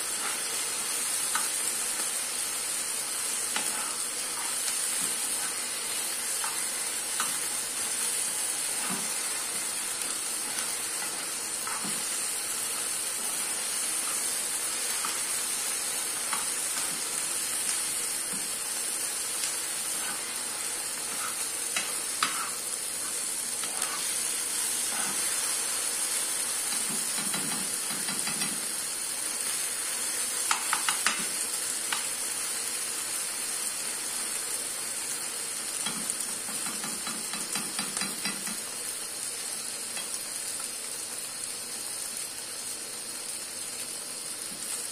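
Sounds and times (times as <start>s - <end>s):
rice sizzling in a pan: 0.0s - 44.9s.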